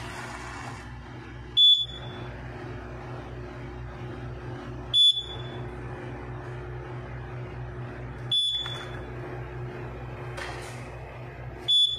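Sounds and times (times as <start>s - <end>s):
steady low hum: 0.0s - 11.9s
fire alarm beeps: 1.6s - 2.3s, 4.9s - 5.6s, 8.3s - 9.1s, 11.6s - 11.9s.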